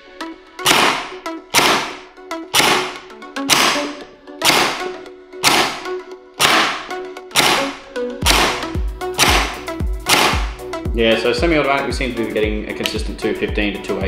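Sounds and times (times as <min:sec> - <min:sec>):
gel blaster single shots: 0:00.6 - 0:10.6.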